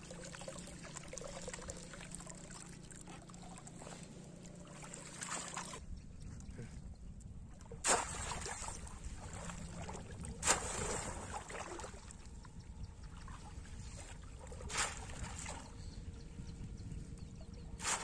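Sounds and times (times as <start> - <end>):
fish trap splashing into water: 7.8 - 8.7, 10.4 - 11.9, 17.8 - 18.0.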